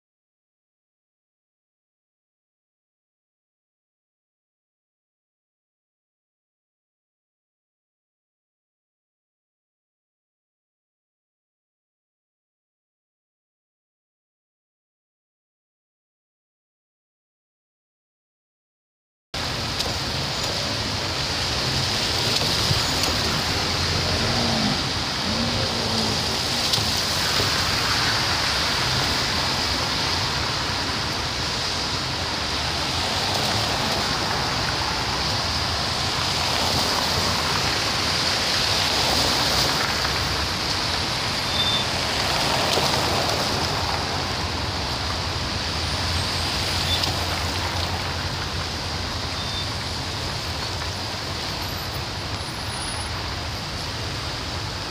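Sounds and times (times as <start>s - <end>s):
car engines rumbling: 19.4s - 54.9s
tyres hissing on wet asphalt: 19.4s - 54.9s.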